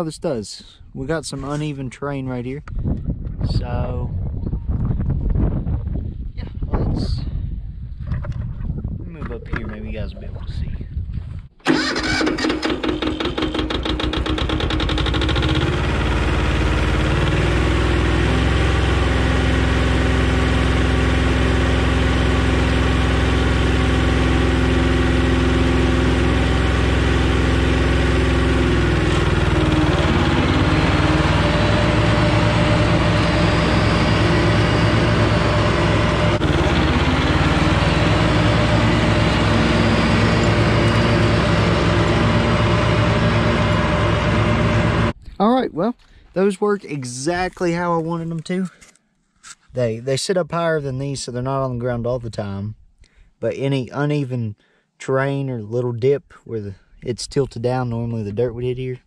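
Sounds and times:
mower blades turning: 0:11.6 - 0:45.1
tractor diesel engine: 0:11.6 - 0:45.2.

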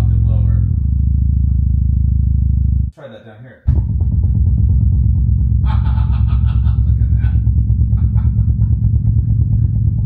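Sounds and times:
deep synthesizer bass drone: 0:00.0 - 0:02.9, 0:03.7 - 0:10.0.

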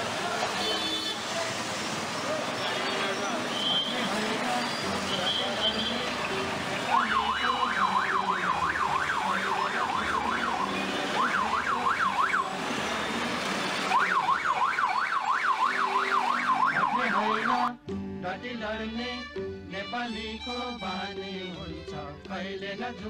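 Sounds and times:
busy street traffic: 0:00.0 - 0:17.9
siren yelping: 0:06.9 - 0:12.5, 0:13.9 - 0:17.7.

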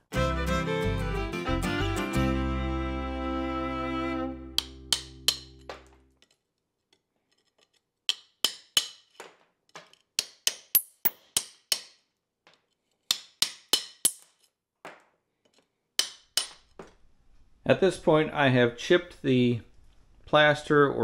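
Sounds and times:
hammer striking steel chisel: 0:04.6 - 0:06.3, 0:07.3 - 0:12.1, 0:13.1 - 0:15.0, 0:16.0 - 0:16.8.

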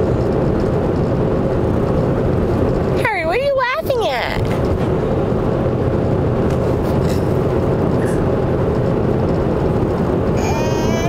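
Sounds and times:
car road and engine noise: 0:00.0 - 0:11.0
toddler laughing: 0:10.4 - 0:11.0.

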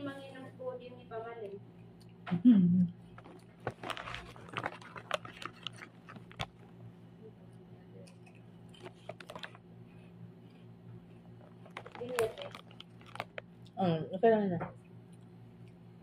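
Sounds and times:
plastic bag crinkling: 0:03.1 - 0:06.8, 0:08.7 - 0:09.6, 0:11.3 - 0:13.7
snack chips rattling: 0:03.2 - 0:06.8, 0:08.2 - 0:09.6, 0:11.4 - 0:13.7.

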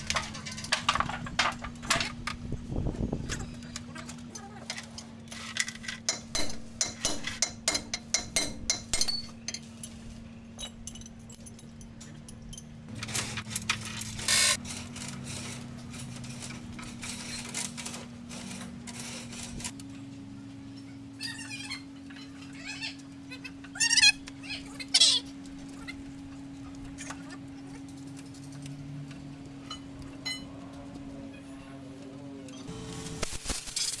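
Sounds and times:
metal tools clinking: 0:00.0 - 0:02.3, 0:08.9 - 0:19.8
low mechanical hum: 0:00.0 - 0:34.0.

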